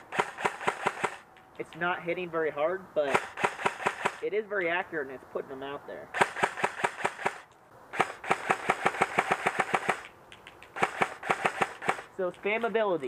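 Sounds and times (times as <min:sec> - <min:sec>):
airsoft rifle firing single shots: 0:00.0 - 0:01.3, 0:03.1 - 0:04.2, 0:06.1 - 0:10.1, 0:10.8 - 0:12.1.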